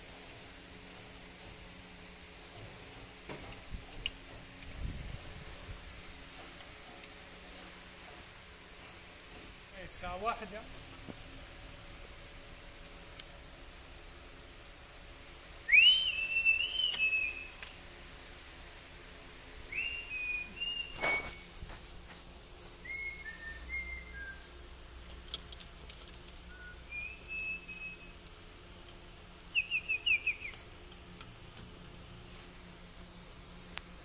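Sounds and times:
high whistled notes: 0:15.6 - 0:17.6, 0:19.7 - 0:21.6, 0:22.8 - 0:24.5, 0:26.5 - 0:28.2
falling chirps: 0:15.7 - 0:17.6, 0:19.7 - 0:21.5, 0:26.5 - 0:28.2, 0:29.5 - 0:30.7.

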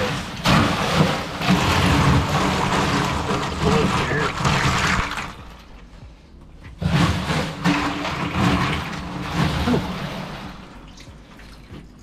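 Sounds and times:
crushed ice crunching: 0:00.0 - 0:05.6.

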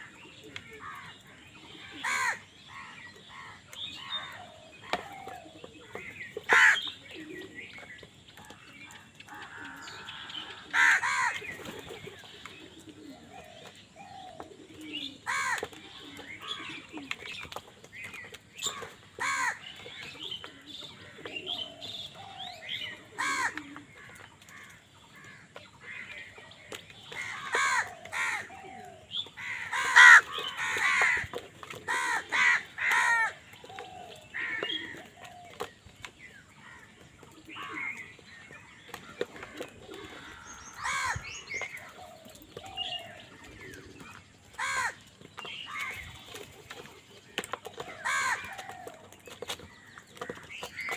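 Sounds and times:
crows cawing: 0:01.8 - 0:05.3, 0:06.5 - 0:06.9, 0:09.3 - 0:11.6, 0:15.2 - 0:15.7, 0:18.7 - 0:19.7, 0:23.1 - 0:26.1, 0:27.1 - 0:35.5, 0:39.3 - 0:43.9, 0:44.6 - 0:45.0, 0:47.8 - 0:49.0.

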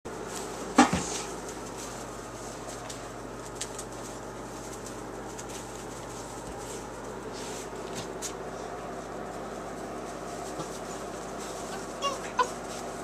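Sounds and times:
puppies rustling on wood shavings: 0:00.1 - 0:13.0
puppy yelp: 0:11.9 - 0:12.7.

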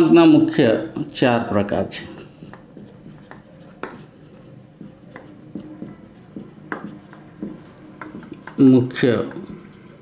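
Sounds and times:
marker writing on whiteboard: 0:02.1 - 0:10.0
marker tip tapping board: 0:02.5 - 0:10.0.

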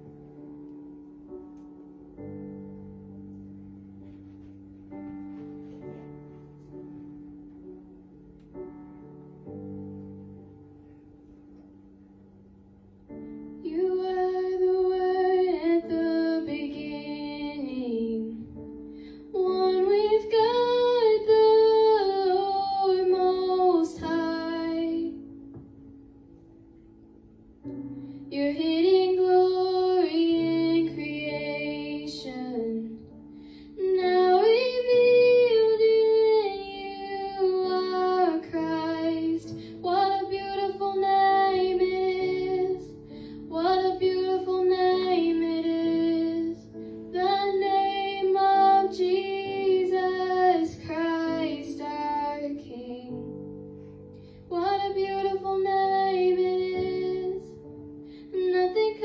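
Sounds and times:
woman singing into a microphone: 0:13.6 - 0:18.6, 0:19.3 - 0:25.2, 0:28.3 - 0:33.2, 0:33.8 - 0:53.3, 0:54.5 - 0:57.6, 0:58.3 - 0:59.0.

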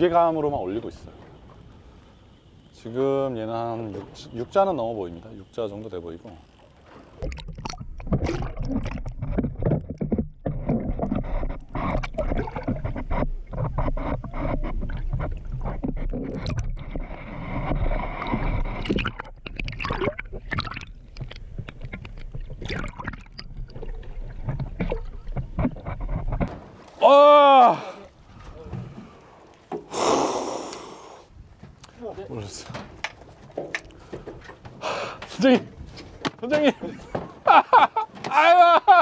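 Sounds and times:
water splashing and gurgling: 0:06.6 - 0:29.7.

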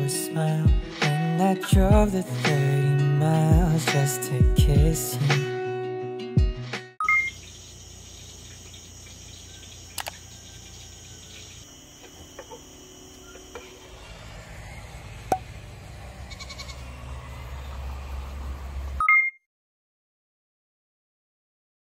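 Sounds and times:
insects chirping: 0:07.0 - 0:19.0
goat bleating: 0:16.3 - 0:16.8.

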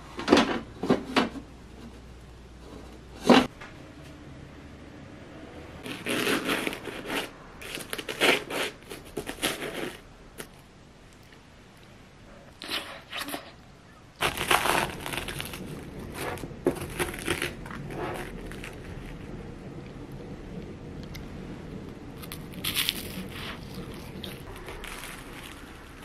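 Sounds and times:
pastry crust crunching: 0:05.8 - 0:11.9, 0:14.2 - 0:19.4, 0:22.2 - 0:26.0.

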